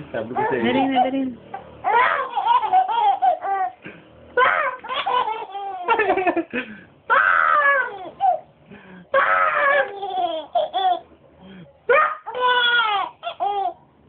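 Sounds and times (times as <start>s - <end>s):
baby giggling: 1.9s - 3.8s, 4.7s - 6.5s, 9.7s - 11.1s, 12.3s - 13.8s.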